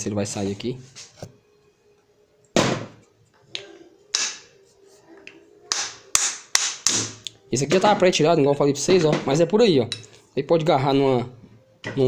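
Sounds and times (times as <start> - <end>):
plastic mallet striking: 4.1 - 4.5, 5.7 - 7.9.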